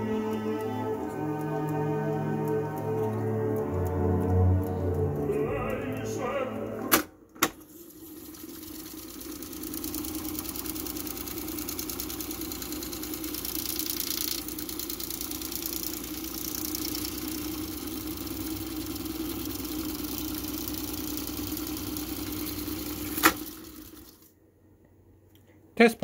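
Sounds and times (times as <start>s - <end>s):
music: 0.0s - 7.0s
tape fast-winding whir: 7.7s - 24.3s.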